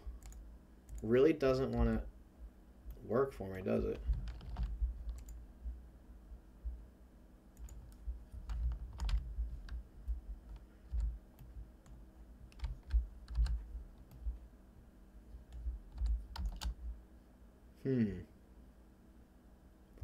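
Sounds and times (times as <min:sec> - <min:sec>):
computer keyboard keystrokes: 0:00.2 - 0:01.1, 0:03.9 - 0:05.4, 0:07.6 - 0:14.3, 0:15.5 - 0:16.8.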